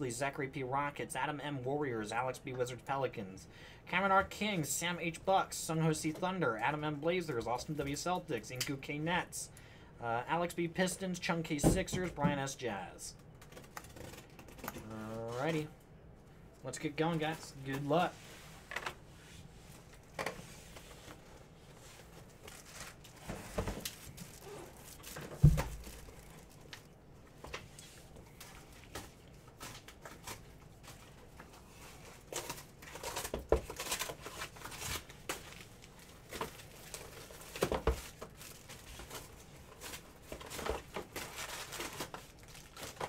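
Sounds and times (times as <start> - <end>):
plastic wrap crinkling and tearing: 13.2 - 15.6, 22.0 - 27.0, 27.7 - 43.0.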